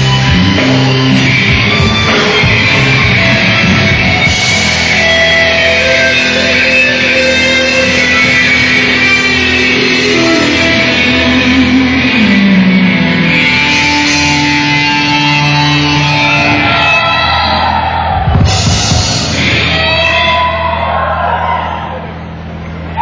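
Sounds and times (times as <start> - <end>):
rock band playing: 0.0 - 20.7
electric guitar lead: 0.0 - 21.1.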